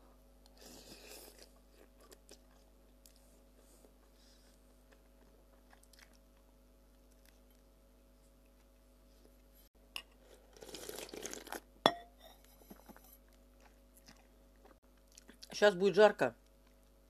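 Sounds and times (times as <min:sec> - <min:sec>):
soft chewing with clicks: 0:00.4 - 0:09.5, 0:13.2 - 0:15.5, 0:16.4 - 0:17.0
slurping noodles: 0:10.4 - 0:11.6.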